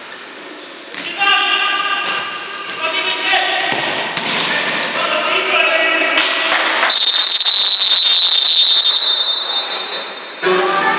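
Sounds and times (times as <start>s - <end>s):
referee's whistle blast: 6.9s - 10.2s.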